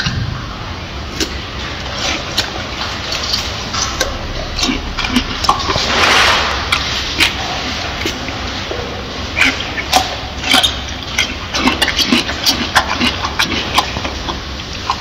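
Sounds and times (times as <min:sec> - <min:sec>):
gorilla chewing wet crunches: 0:01.0 - 0:05.9, 0:09.2 - 0:15.0
rushing wet noise: 0:02.3 - 0:08.7.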